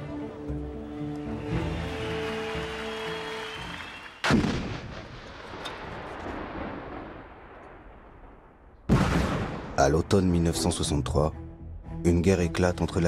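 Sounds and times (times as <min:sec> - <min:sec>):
soundtrack music with held notes: 0:00.0 - 0:03.9, 0:10.0 - 0:13.0
loud gunshot with rumble: 0:04.3 - 0:05.3, 0:08.9 - 0:09.8.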